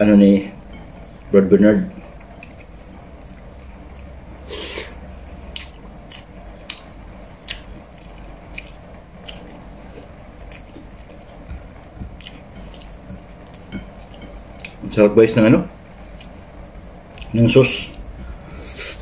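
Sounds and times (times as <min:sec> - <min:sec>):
man chewing with mouth clicks: 0:02.2 - 0:14.8, 0:16.1 - 0:16.4, 0:17.1 - 0:17.3.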